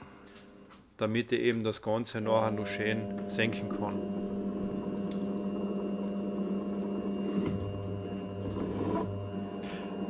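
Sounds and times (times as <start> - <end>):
drill press humming: 2.3 - 10.0.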